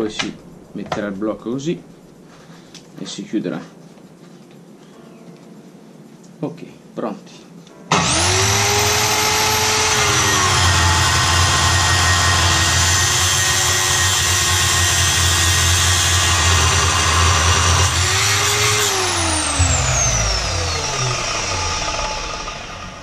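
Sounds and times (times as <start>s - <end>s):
metal cutting saw cutting steel: 7.9s - 23.0s
saw motor spinning down: 7.9s - 23.0s.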